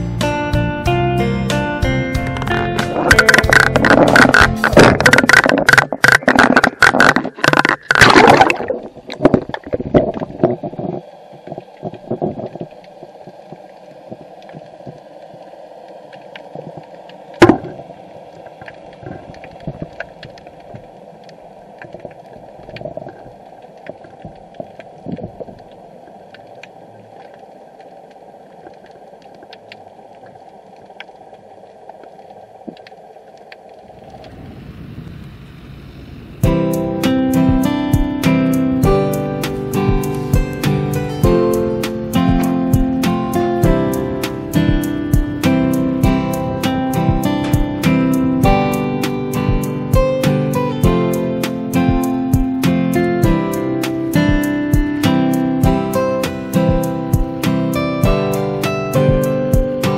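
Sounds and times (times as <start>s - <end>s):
dull underwater hum: 0.0s - 59.9s
water splashing and churning: 2.2s - 59.9s
faint clicks: 9.2s - 35.4s.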